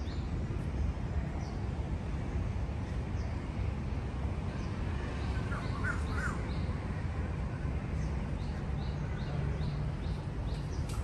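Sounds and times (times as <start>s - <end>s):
harsh bird calls: 4.6s - 6.8s.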